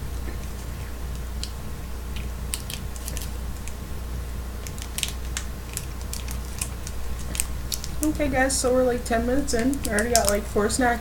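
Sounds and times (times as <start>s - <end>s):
steady low hum: 0.0s - 11.0s
wrapper crinkling: 2.1s - 3.8s, 4.6s - 8.2s, 9.4s - 10.5s.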